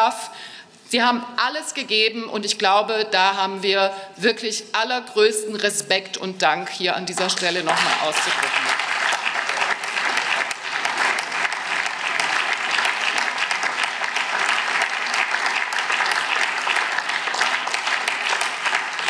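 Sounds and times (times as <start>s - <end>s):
crowd applauding: 7.6s - 19.0s.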